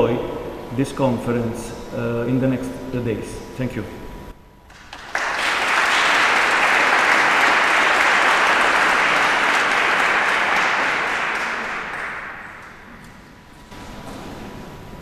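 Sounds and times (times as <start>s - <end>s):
audience applauding: 4.7s - 13.1s.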